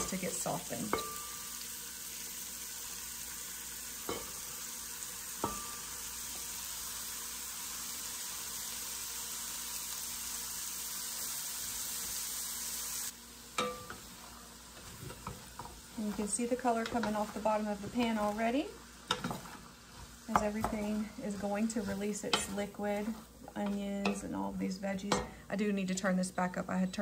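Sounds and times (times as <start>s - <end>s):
vegetables sizzling in butter: 0.0s - 26.1s
wooden spoon knocking pot: 15.2s - 18.1s, 20.3s - 20.9s.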